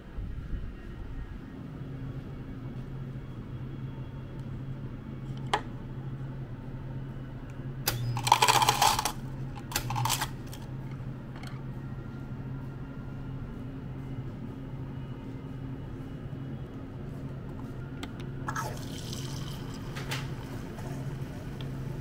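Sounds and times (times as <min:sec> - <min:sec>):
steady low hum: 0:00.0 - 0:22.0
ice cubes clattering into cup: 0:08.2 - 0:09.2, 0:09.8 - 0:10.3.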